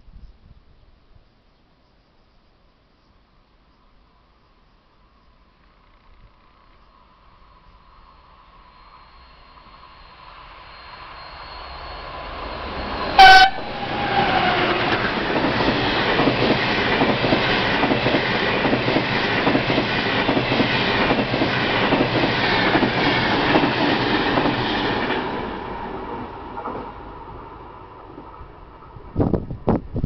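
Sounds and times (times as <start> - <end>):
train horn blast: 13.1 - 14.9
train wheels clattering on rails: 13.9 - 27.0.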